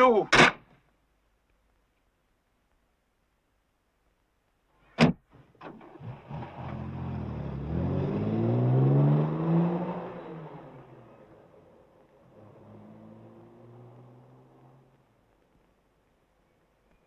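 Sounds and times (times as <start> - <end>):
door slamming: 5.0 - 5.2
car engine accelerating away: 5.6 - 15.1.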